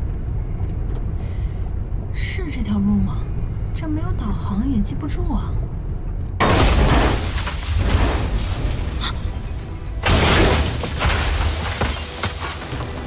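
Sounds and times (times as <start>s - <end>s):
car crashing: 6.4s - 13.0s
heavy rumbling and breaking: 6.4s - 13.0s.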